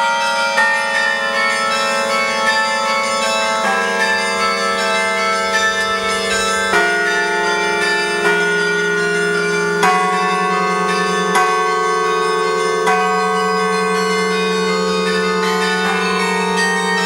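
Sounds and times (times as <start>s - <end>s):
carillon bells ringing: 0.0s - 17.0s.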